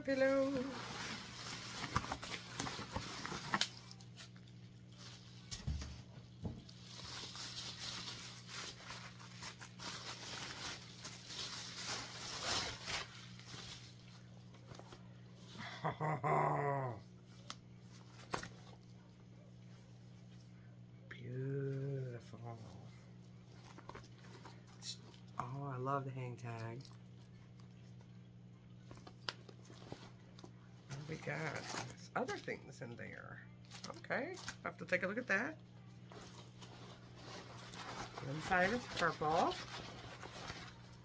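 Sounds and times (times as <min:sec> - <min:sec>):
bubble wrap crinkling: 0:00.0 - 0:16.2, 0:23.1 - 0:25.5, 0:26.8 - 0:32.7, 0:33.6 - 0:41.0.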